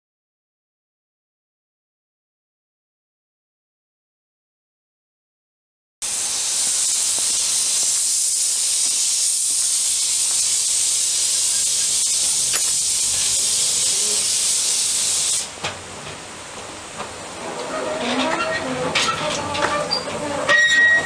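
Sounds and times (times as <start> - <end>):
steam locomotive hissing steam: 6.0 - 15.7.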